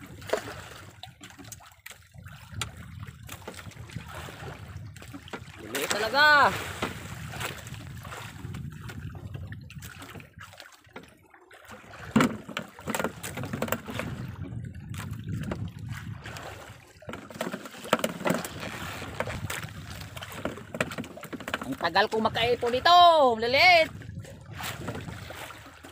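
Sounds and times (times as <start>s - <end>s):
sea water sloshing against boat: 0.0s - 25.9s
wind on microphone: 2.1s - 10.6s, 12.9s - 17.1s, 18.2s - 21.0s, 21.6s - 25.9s.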